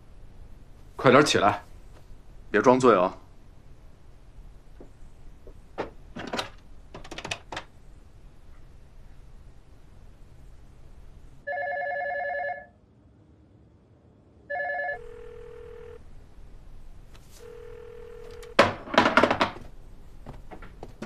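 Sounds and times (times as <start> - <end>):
telephone ringing: 11.4 - 12.8, 14.5 - 16.0, 17.4 - 19.2
low telephone line tone: 11.4 - 13.0, 14.4 - 16.1, 17.3 - 18.6
loud knocks and clatter: 18.6 - 21.0.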